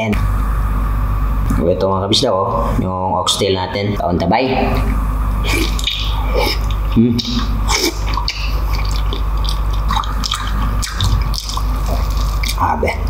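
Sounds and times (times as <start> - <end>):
steady low hum: 0.0 - 13.0
wet chewing and squelching: 5.5 - 13.0.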